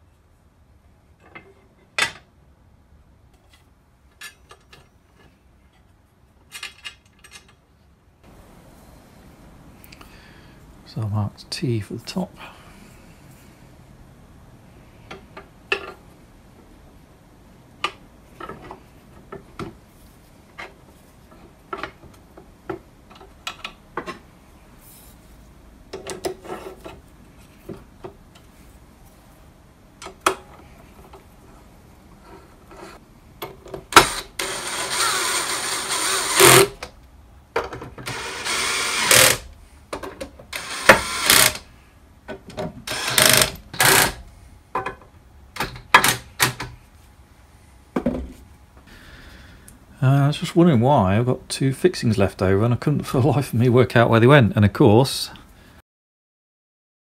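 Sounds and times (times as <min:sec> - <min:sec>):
cordless drill driving screws: 0:33.9 - 0:36.8, 0:38.0 - 0:39.5, 0:40.5 - 0:41.7, 0:42.9 - 0:44.2.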